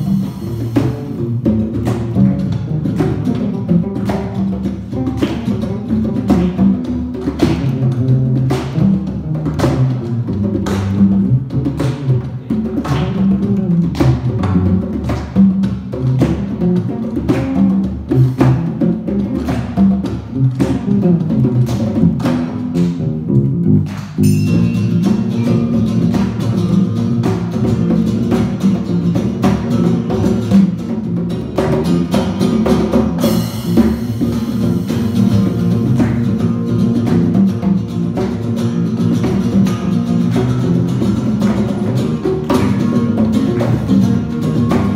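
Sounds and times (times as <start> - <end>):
congas: 0.0 - 44.9
electric bass: 0.0 - 44.9
funk band playing: 0.0 - 44.9
guitar: 0.0 - 44.9
cymbals: 24.0 - 30.8, 31.9 - 37.4.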